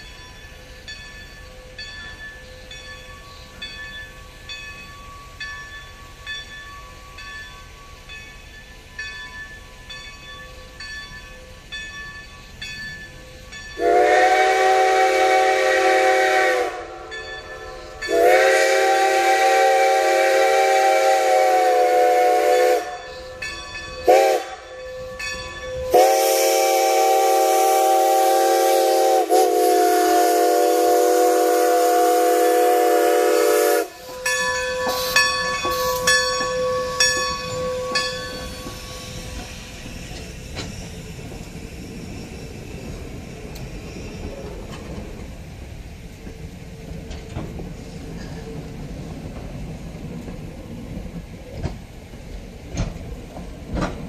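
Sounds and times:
crossing bell ringing: 0.0 - 19.0, 22.0 - 26.9, 32.4 - 40.6
steam whistle blasts: 13.8 - 23.2, 24.0 - 24.7, 25.9 - 38.0.

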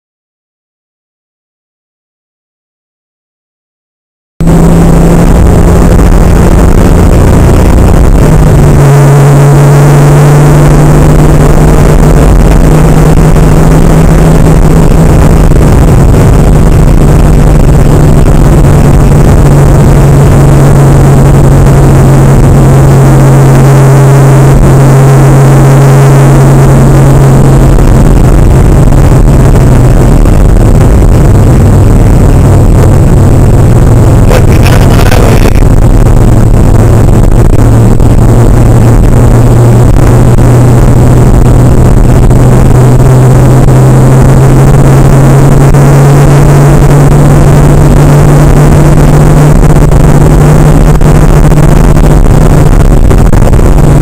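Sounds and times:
car engine droning: 4.4 - 54.0
road and wind noise: 4.4 - 54.0.

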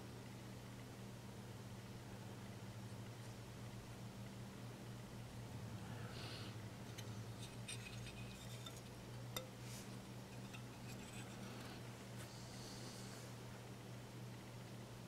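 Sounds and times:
steady low hum: 0.0 - 15.0
porcelain ticks and clinks: 6.9 - 9.5.

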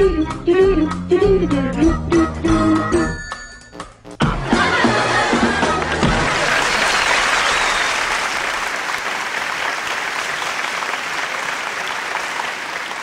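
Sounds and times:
music: 0.0 - 6.8
large crowd applauding: 5.6 - 13.0.

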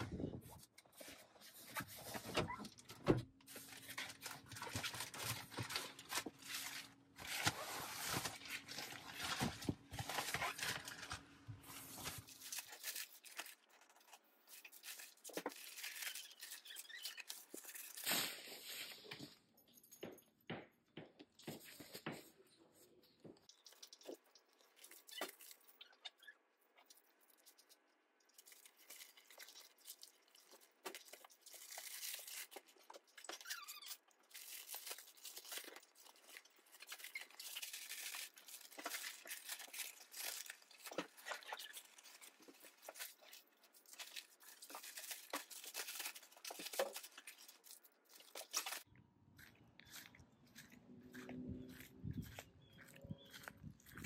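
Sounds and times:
nylon rustling and crinkling: 0.0 - 19.5, 26.8 - 48.9.

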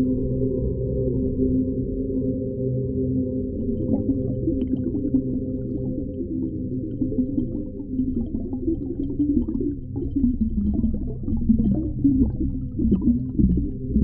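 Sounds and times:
muffled wavering gurgles and moans: 0.0 - 14.0
underwater low rumble: 0.0 - 14.0.

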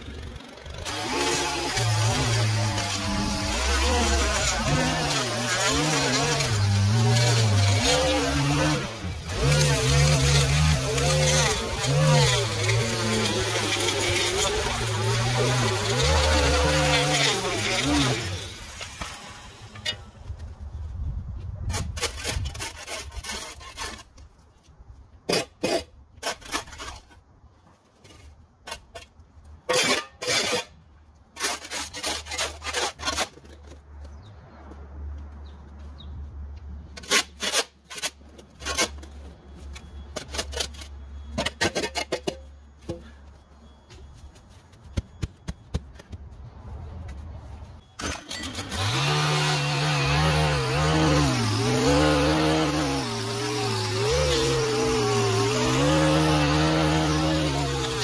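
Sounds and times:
small engine starting and revving: 0.0 - 19.7, 48.0 - 58.0.

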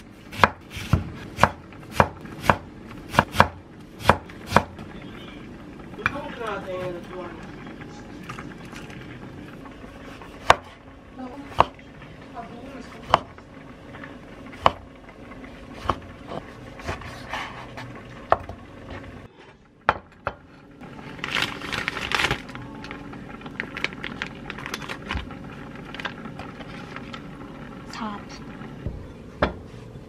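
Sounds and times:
knife chopping on wooden board: 0.3 - 4.8, 10.1 - 10.8, 13.0 - 13.3, 14.6 - 14.8, 15.8 - 17.2
food rustling and clatter: 8.1 - 10.3, 20.8 - 27.4.

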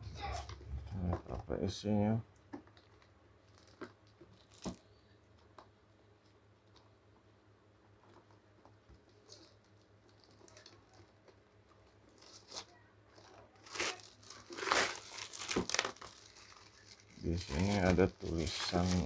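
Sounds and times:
plastic shrink wrap tearing: 3.5 - 4.8, 9.2 - 11.1, 12.1 - 19.0.

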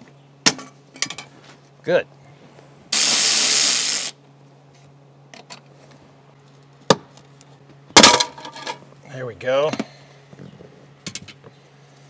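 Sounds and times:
cordless ratchet running: 3.0 - 4.2.

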